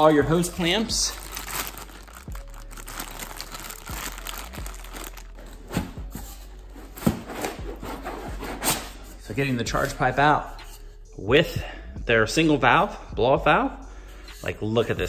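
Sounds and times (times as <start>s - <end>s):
plastic bag crinkling: 0.5s - 5.7s.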